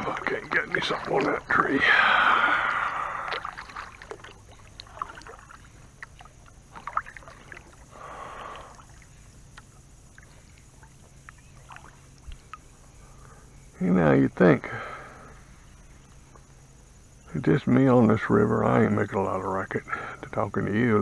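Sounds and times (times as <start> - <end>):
paddle swishing through water: 0.0 - 12.8
small clicks and drips: 3.3 - 7.9, 8.7 - 13.4.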